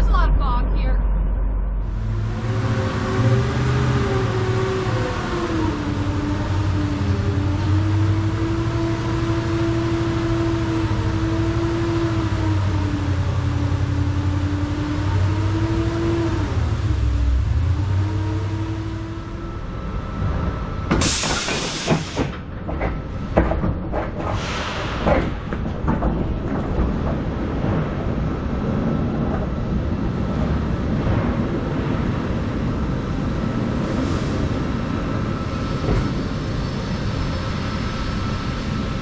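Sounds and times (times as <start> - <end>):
forklift engine under load: 1.8 - 39.0
load knocking and clattering: 20.9 - 28.0
loud hiss: 21.0 - 22.3.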